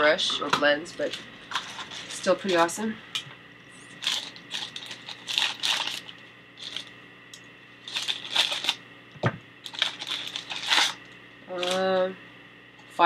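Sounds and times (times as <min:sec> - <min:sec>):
plastic packaging crinkling: 0:00.9 - 0:02.8, 0:03.8 - 0:07.0, 0:07.8 - 0:08.8, 0:09.6 - 0:12.1.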